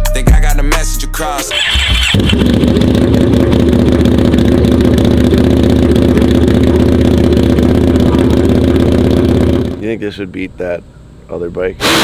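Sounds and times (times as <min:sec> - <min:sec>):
dirt bike engine running: 0:01.5 - 0:10.0.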